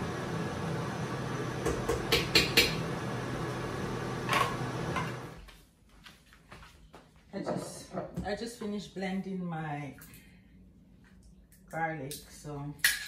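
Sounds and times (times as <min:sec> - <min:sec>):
steady background hum: 0:05.4 - 0:13.0.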